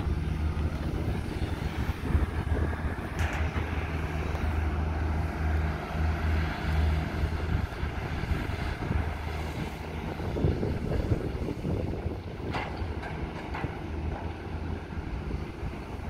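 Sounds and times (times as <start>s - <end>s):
diesel engines humming: 0.0s - 16.0s
excavator digging and loading dirt: 0.0s - 16.0s.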